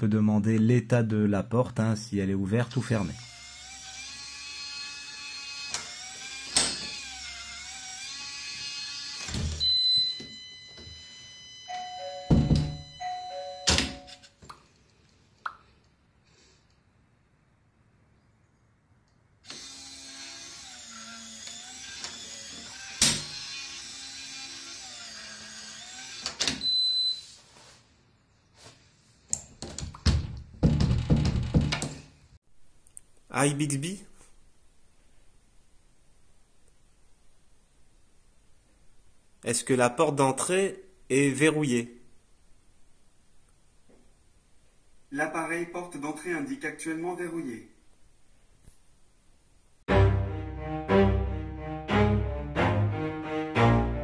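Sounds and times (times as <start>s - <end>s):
small electric motor whining: 3.2s - 9.4s, 19.4s - 26.4s
thin steady high tone: 9.7s - 14.1s
loud knocks and bumps: 30.1s - 32.1s.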